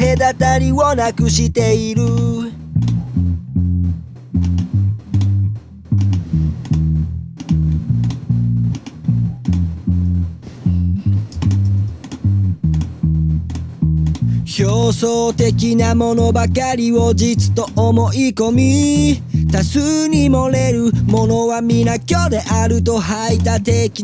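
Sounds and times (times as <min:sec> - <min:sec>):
electric bass line: 0:00.0 - 0:24.0.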